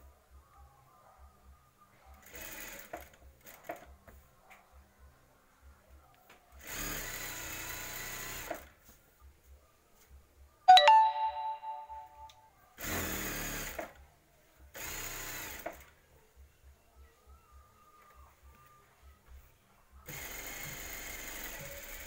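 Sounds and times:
sewing machine stitching: 2.2s - 3.9s, 6.6s - 8.7s, 20.1s - 22.0s
ringing ding: 10.7s - 12.3s.

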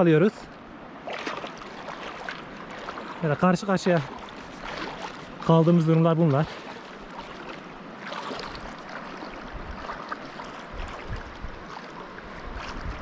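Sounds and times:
mountain stream rushing: 0.0s - 13.0s.

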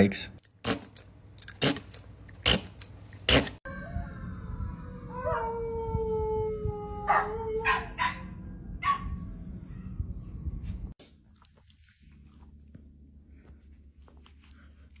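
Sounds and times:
second higher howl: 3.7s - 8.0s
dog howling: 3.7s - 8.3s
dog yipping: 7.1s - 9.2s.

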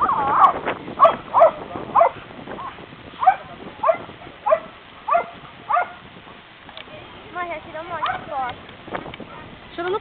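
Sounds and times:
dog barking: 0.4s - 6.0s, 8.0s - 8.3s.

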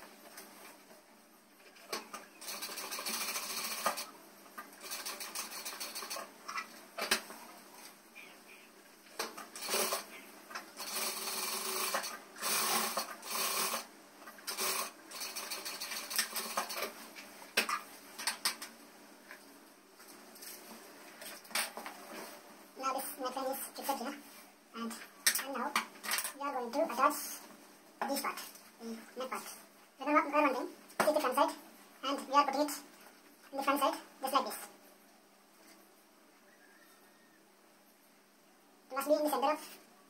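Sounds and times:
sewing machine stitching: 2.4s - 4.1s, 4.8s - 6.3s, 9.6s - 10.1s, 10.8s - 16.9s.

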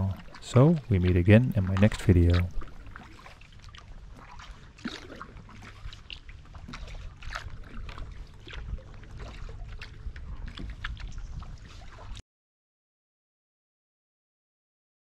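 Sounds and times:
low steady rumble: 0.0s - 11.6s
paddle splashing in water: 0.0s - 12.2s.

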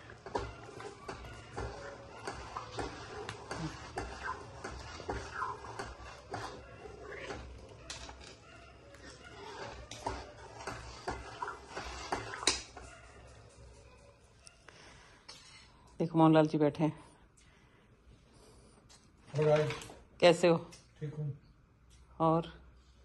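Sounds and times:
metal ladle scraping a pan: 0.0s - 12.8s.

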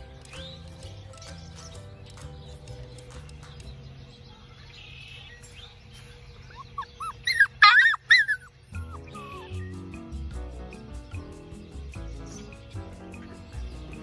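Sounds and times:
puppies yipping and whining: 5.4s - 9.8s.

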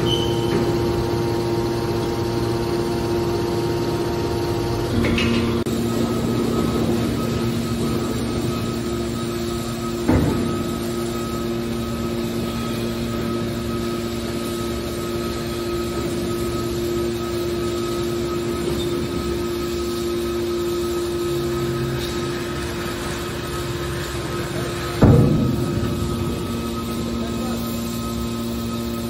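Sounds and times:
hydraulic pump hum: 0.0s - 29.0s
sharp metal clunk: 25.0s - 26.8s.

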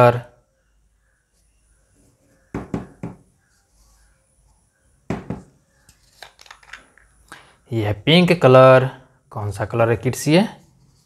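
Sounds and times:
plastic jars knocking on table: 5.1s - 5.5s.

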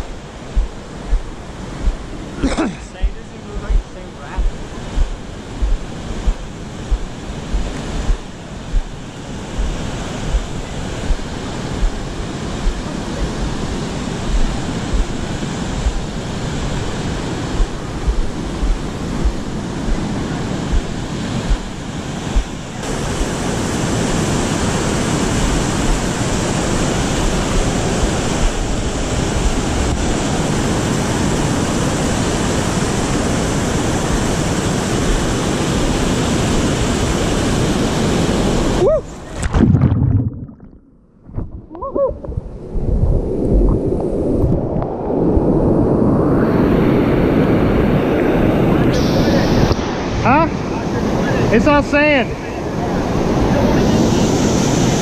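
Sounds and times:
low thumps on microphone: 0.0s - 16.2s, 17.5s - 22.6s, 39.4s - 43.9s
whitewater rushing over rapids: 0.0s - 40.2s.

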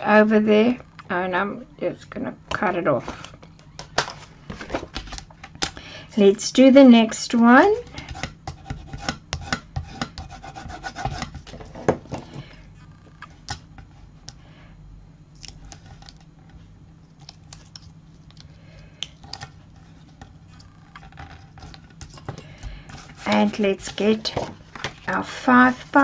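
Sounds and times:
tool rubbing over tape: 7.1s - 11.8s, 19.2s - 26.0s.

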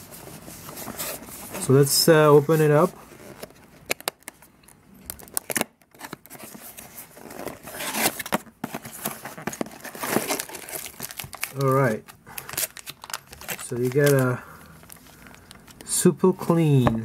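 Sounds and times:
plastic packaging crinkling: 2.4s - 15.9s.

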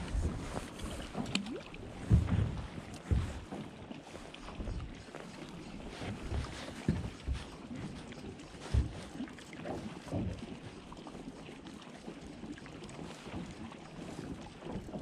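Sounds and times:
wind on microphone: 0.0s - 9.2s
water lapping against boat: 0.0s - 15.0s.

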